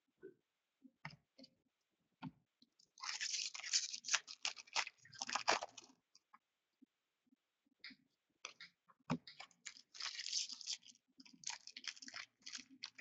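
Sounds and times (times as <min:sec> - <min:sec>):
foil wrapper crinkling and tearing: 0:03.0 - 0:05.9, 0:09.6 - 0:13.0.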